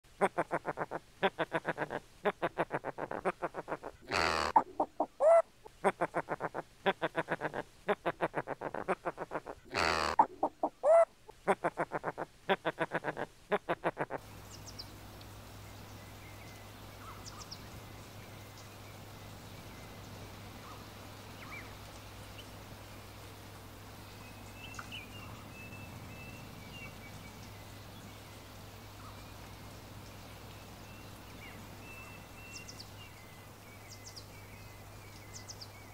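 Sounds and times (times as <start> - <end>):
faint steady hiss: 0.0 - 35.9
macaws calling: 0.2 - 14.2
loud squawks: 3.8 - 5.4, 9.0 - 11.1
faint bird chirps and trills: 14.0 - 35.9.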